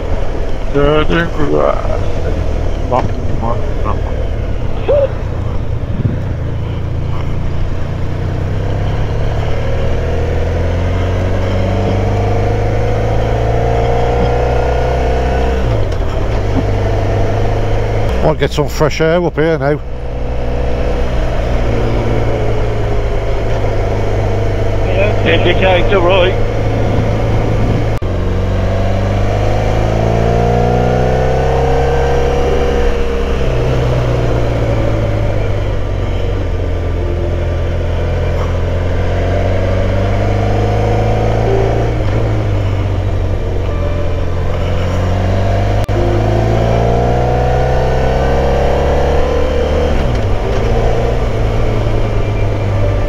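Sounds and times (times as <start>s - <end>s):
motorcycle engine accelerating: 0.0s - 53.0s
road and wind noise: 0.0s - 53.0s.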